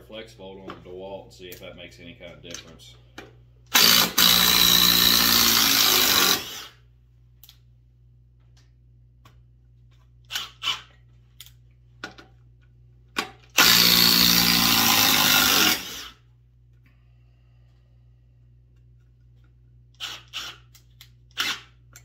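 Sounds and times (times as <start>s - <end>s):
impact driver hammering a screw: 3.7s - 6.6s, 13.5s - 16.1s.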